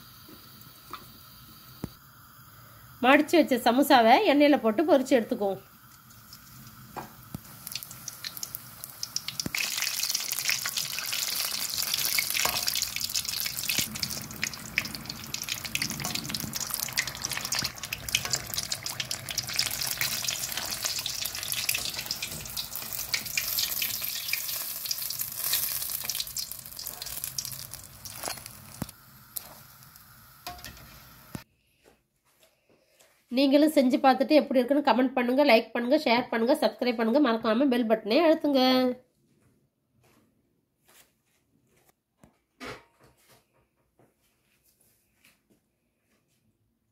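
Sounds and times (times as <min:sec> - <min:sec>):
samosas deep-frying in hot oil: 0:00.0 - 0:31.5.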